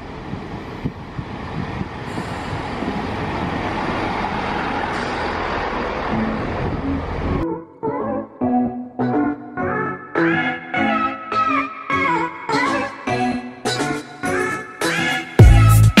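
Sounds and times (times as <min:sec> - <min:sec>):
passenger train rumbling past: 0:00.0 - 0:07.4.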